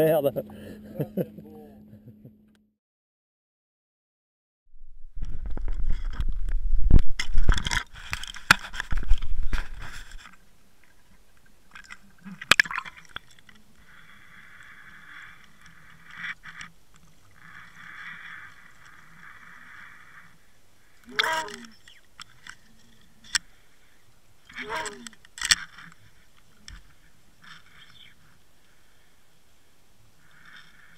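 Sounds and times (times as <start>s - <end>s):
faint hum: 0.0s - 2.6s
underwater knocks and scraping: 5.0s - 13.7s
water gurgles: 11.0s - 13.8s
click: 21.2s - 22.6s.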